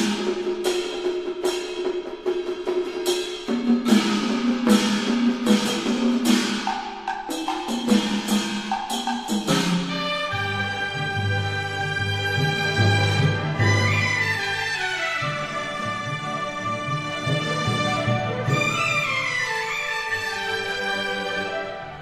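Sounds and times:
wood-block-like struck notes: 0.0s - 21.6s.

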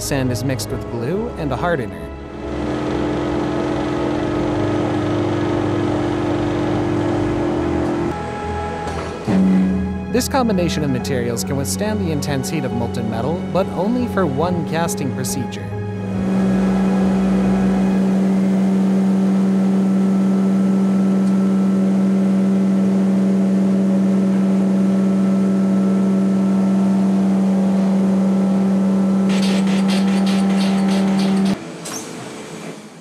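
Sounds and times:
machinery low hum: 0.0s - 33.0s
rattling clatter: 29.3s - 31.6s.

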